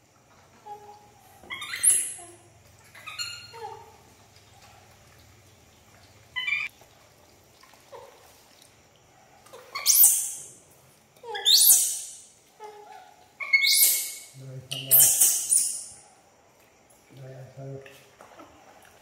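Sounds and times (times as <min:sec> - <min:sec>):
monkey squealing and shrieking: 0:00.7 - 0:04.0, 0:06.4 - 0:06.7, 0:09.5 - 0:10.5, 0:11.2 - 0:16.0.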